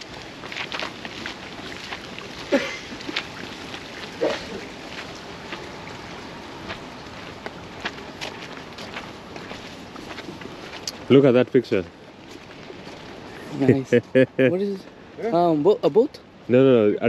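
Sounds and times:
footsteps on wet wooden planks: 0:00.0 - 0:13.4
steady outdoor hush: 0:00.0 - 0:17.0.

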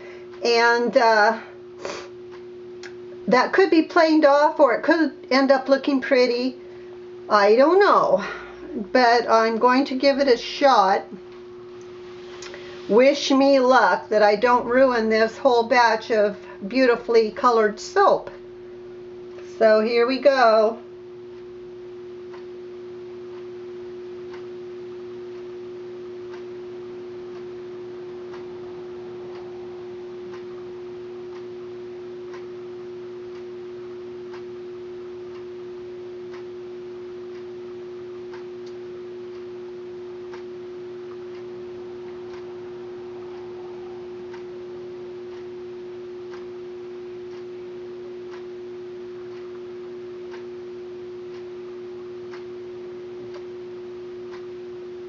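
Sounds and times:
steady tonal hum: 0:00.0 - 0:55.0
faint ticks: 0:22.3 - 0:22.6, 0:34.2 - 0:34.6, 0:40.2 - 0:46.6, 0:48.3 - 0:48.5, 0:49.2 - 0:50.6, 0:54.3 - 0:54.6.

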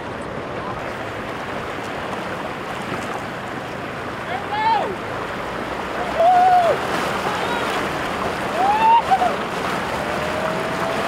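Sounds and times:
water noise: 0:00.0 - 0:11.0
wind: 0:00.0 - 0:11.0
voices calling out: 0:06.0 - 0:11.0.

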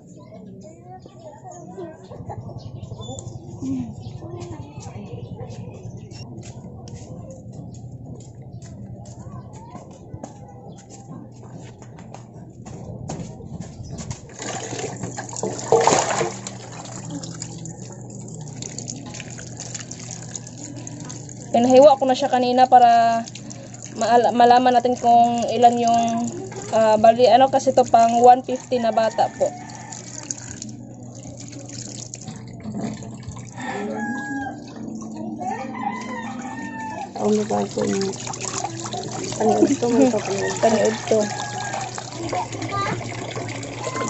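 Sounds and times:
fish splashing into water: 0:14.3 - 0:21.5, 0:29.3 - 0:34.5, 0:35.9 - 0:44.0
water running: 0:14.3 - 0:44.0
rooster crowing: 0:28.7 - 0:30.7, 0:33.5 - 0:37.2, 0:40.0 - 0:42.9.

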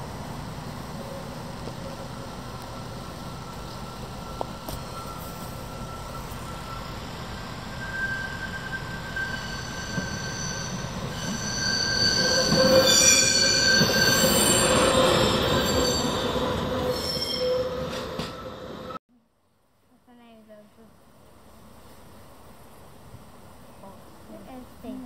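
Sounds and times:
train rumble: 0:00.0 - 0:19.0
wheels squealing on rails: 0:00.8 - 0:19.0.

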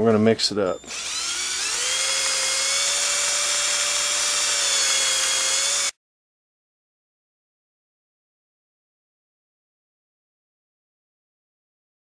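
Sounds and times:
electric drill motor whine: 0:00.7 - 0:06.0.

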